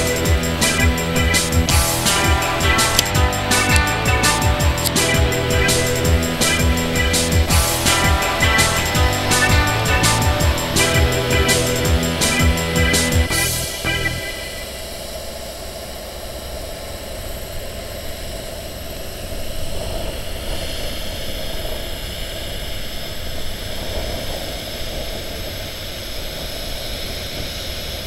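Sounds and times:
even hiss: 0.0 - 15.0
heavy machinery diesel engines: 0.0 - 20.9.

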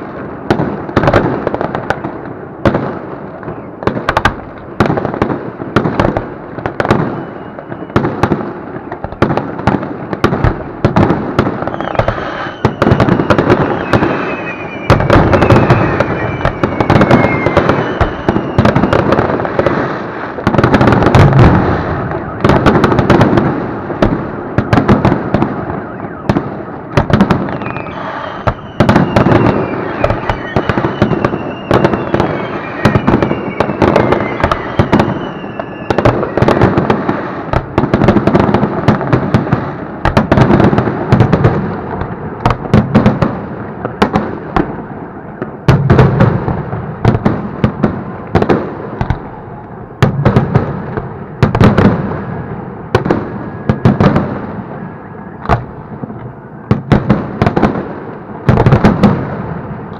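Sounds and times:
fireworks bursting and crackling: 0.0 - 59.9
falling firework whistles: 3.4 - 4.9, 6.7 - 9.4, 10.1 - 23.9, 24.6 - 43.8, 48.4 - 55.8.

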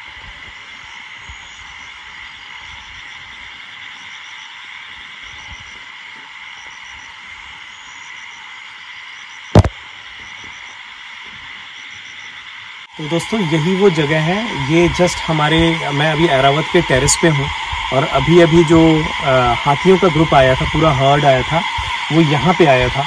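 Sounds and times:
frogs chorus: 0.0 - 23.0
sharp knock: 9.6 - 9.8.

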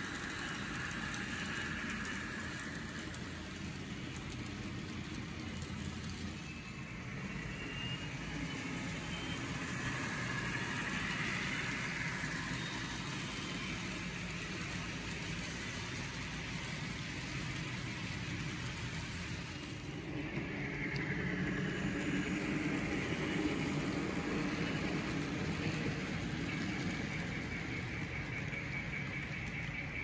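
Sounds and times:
model train rumbling past: 0.0 - 30.0
wheels hissing on rails: 0.0 - 30.0.

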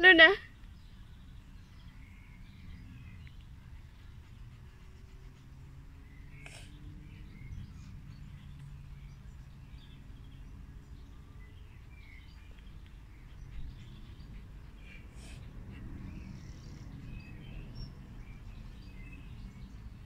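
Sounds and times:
steady low rumble: 6.8 - 20.0.

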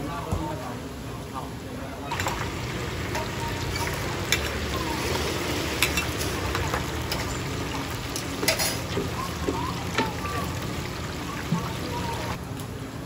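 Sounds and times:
metal ladles clinking: 2.1 - 4.8, 5.7 - 9.1
oil sizzling from deep-frying: 2.1 - 12.4.

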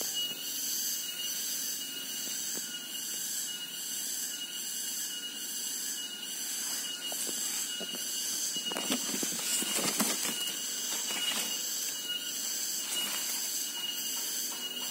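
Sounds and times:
insects chorus: 0.0 - 14.9
hand rustling leaves: 8.7 - 12.0.

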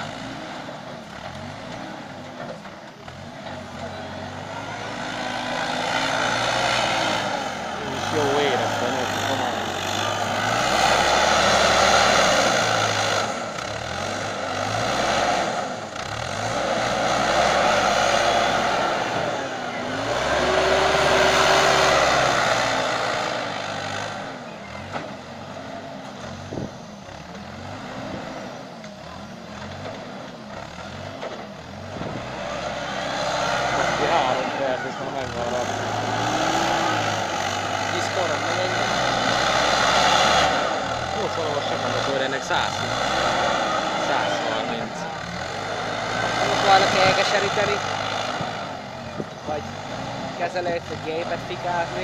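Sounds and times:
diesel engine revving: 0.0 - 52.0.

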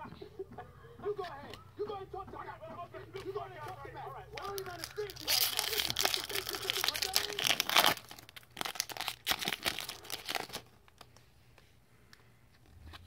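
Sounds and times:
wrapper crinkling and tearing: 4.4 - 11.2.

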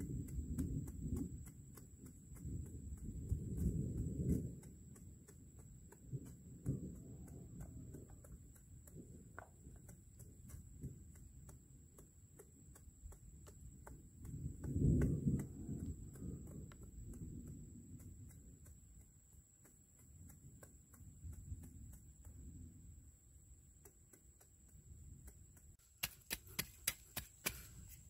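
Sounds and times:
faint fast ticking: 0.0 - 27.9
wind gusting on microphone: 14.0 - 18.8.

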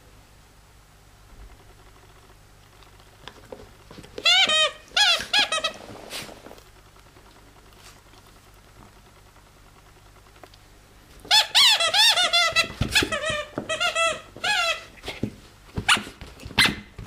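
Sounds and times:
squeaky dog toy squeaking: 4.2 - 5.8, 11.3 - 14.9.

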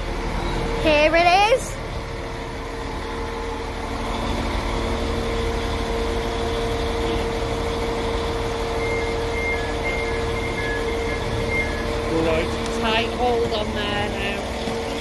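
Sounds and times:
diesel train engine idling: 0.0 - 15.0
short high beeps: 8.8 - 13.1.

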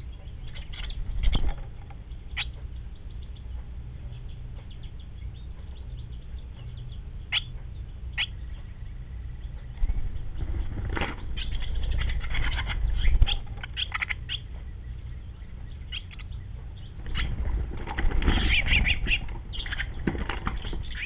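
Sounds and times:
small bird chirps: 0.0 - 21.0
steady low hum: 0.0 - 21.0.

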